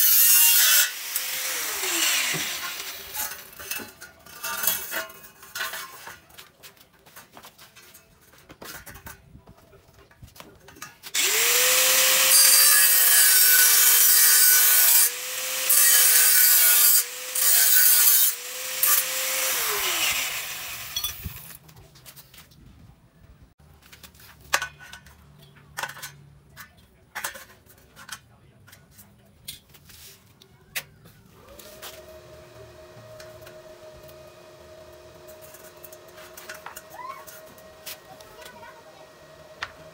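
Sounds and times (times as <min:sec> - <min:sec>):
angle grinder grinding steel: 0:00.0 - 0:06.0, 0:11.1 - 0:21.6, 0:31.4 - 0:39.9.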